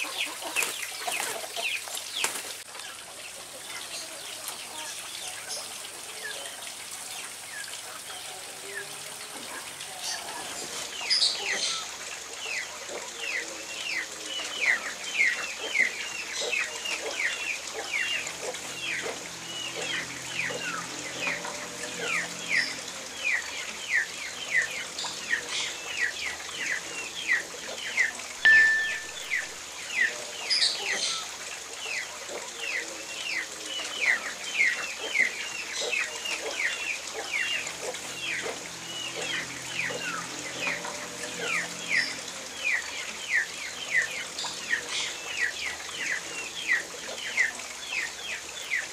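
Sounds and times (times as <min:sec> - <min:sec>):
chickens clucking: 0:00.0 - 0:02.4.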